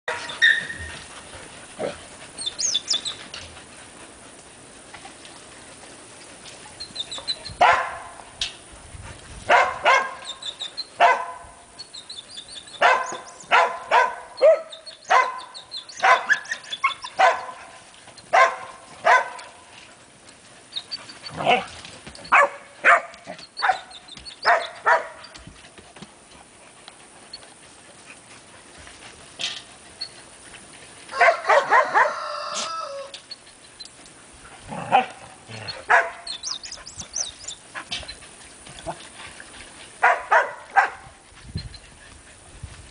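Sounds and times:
young dogs barking: 0:07.5 - 0:08.2, 0:09.5 - 0:10.4, 0:11.0 - 0:11.6, 0:12.8 - 0:19.6, 0:22.3 - 0:25.3, 0:31.1 - 0:33.1, 0:34.7 - 0:37.9, 0:40.0 - 0:41.2.

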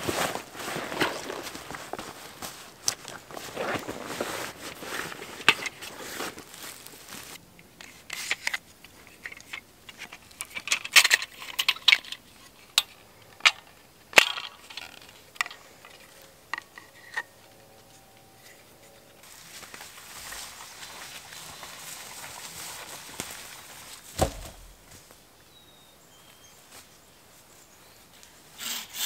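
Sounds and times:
fabric rustling: 0:00.0 - 0:07.4.

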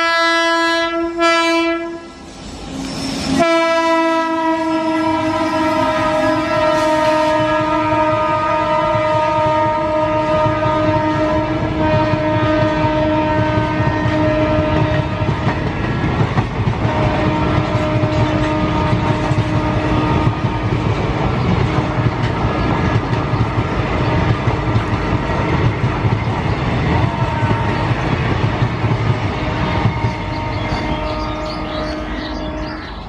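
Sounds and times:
train wheels rumbling on track: 0:00.0 - 0:33.0.

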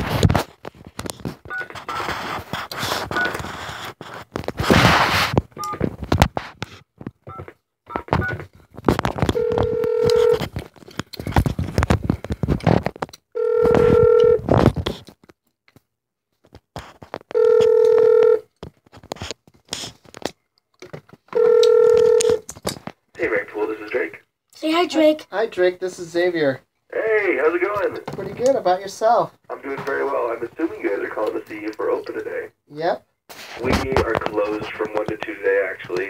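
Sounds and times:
phone handling clicks and rustling: 0:05.4 - 0:23.0
telephone ringback tone: 0:09.3 - 0:10.4, 0:13.4 - 0:14.4, 0:17.4 - 0:18.5, 0:21.4 - 0:22.4.

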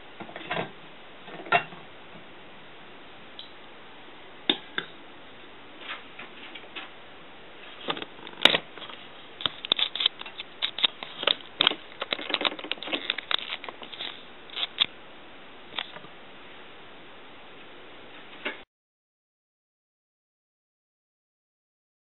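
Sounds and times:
handling noise: 0:07.7 - 0:14.9.

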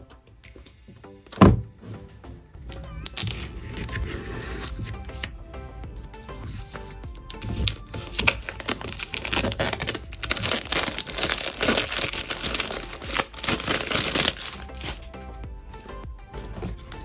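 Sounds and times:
background music: 0:00.0 - 0:17.0
packaging crinkling and rustling: 0:03.1 - 0:05.3, 0:07.4 - 0:15.1.

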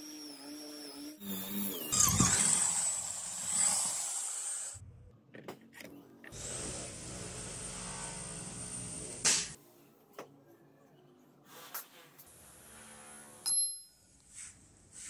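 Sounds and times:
electric drill whining in steel: 0:00.0 - 0:04.8, 0:06.3 - 0:09.3.

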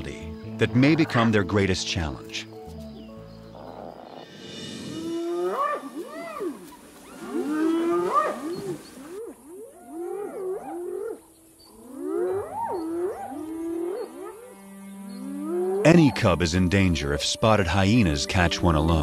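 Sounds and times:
hyenas whooping: 0:03.6 - 0:14.6.

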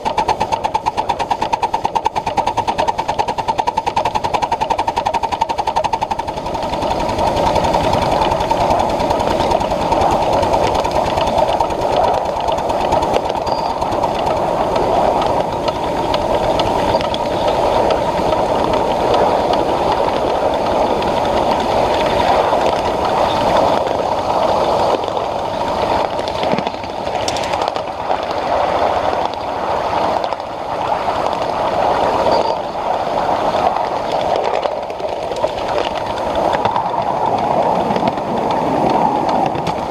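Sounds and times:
sharp clicks and knocks: 0:00.0 - 0:24.0, 0:25.9 - 0:28.3, 0:34.1 - 0:39.9
steam train rumbling on track: 0:00.0 - 0:29.6.

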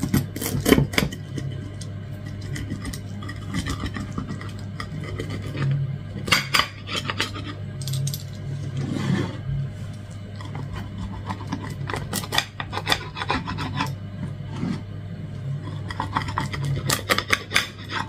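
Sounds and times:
low hum: 0:00.0 - 0:18.0
knife scraping on plate: 0:15.6 - 0:18.0.

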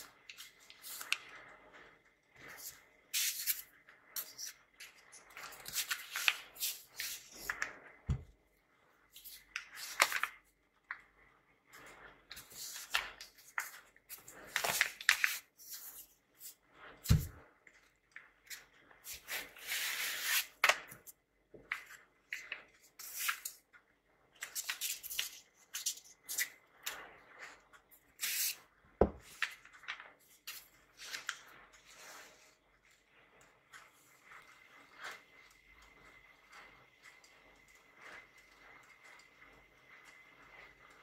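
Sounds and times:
stiff paper rustling and crinkling: 0:00.0 - 0:08.2, 0:09.1 - 0:10.4, 0:12.2 - 0:17.5.

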